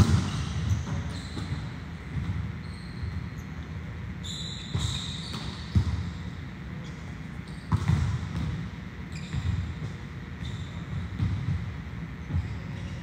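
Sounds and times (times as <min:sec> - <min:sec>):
volleyballs thudding: 0:00.0 - 0:02.6
short high squeaks: 0:00.3 - 0:01.8, 0:02.6 - 0:03.6, 0:04.2 - 0:05.8.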